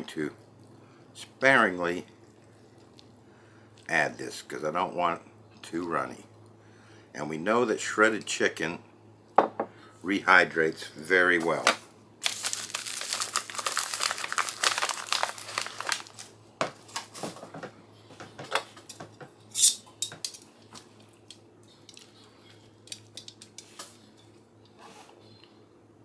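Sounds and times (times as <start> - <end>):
plastic pouch crinkling: 12.2 - 17.2.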